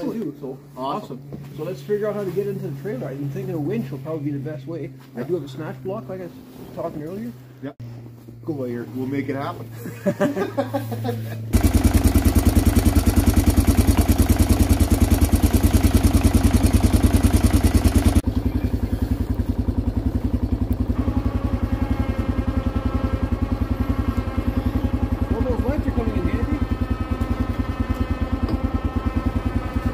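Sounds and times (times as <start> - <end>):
engine idling with thumping pulse: 11.4 - 29.9.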